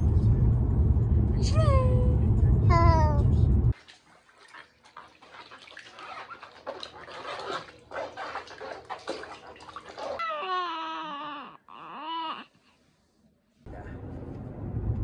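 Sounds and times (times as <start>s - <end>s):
baby crying: 10.2s - 12.5s.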